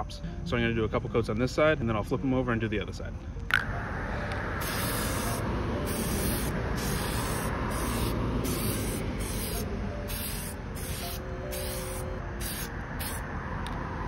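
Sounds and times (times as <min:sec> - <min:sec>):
aerosol can spraying hiss: 0:04.6 - 0:13.2.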